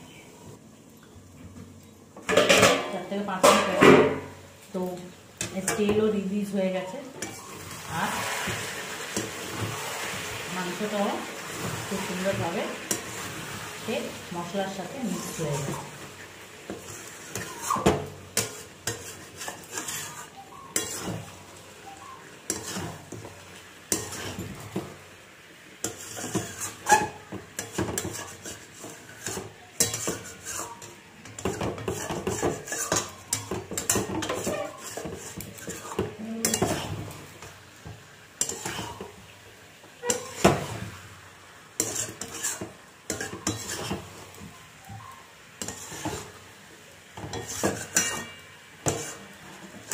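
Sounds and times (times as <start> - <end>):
metal spatula scraping a pan: 6.8 - 25.0, 25.8 - 39.2, 40.0 - 41.2, 41.8 - 46.5, 47.2 - 49.9.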